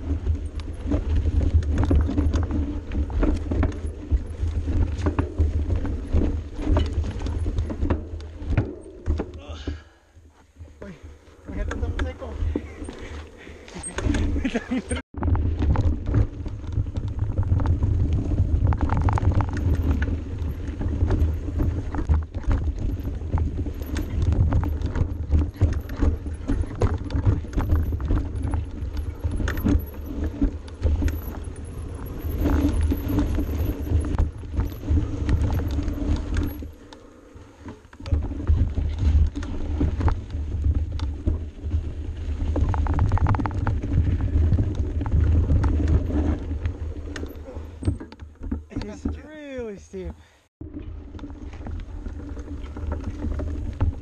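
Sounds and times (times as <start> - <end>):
wind and trail rumble on microphone: 0.0 - 49.2, 50.4 - 54.0
bike rattling over bumps: 0.0 - 54.0.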